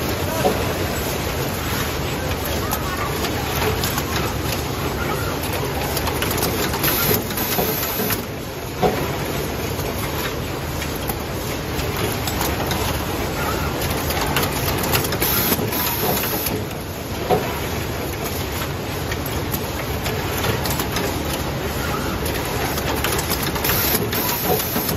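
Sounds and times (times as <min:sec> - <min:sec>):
machine mechanical clatter: 0:00.0 - 0:24.9
sharp machine clicks and knocks: 0:05.4 - 0:09.2, 0:13.8 - 0:21.5, 0:22.2 - 0:24.9.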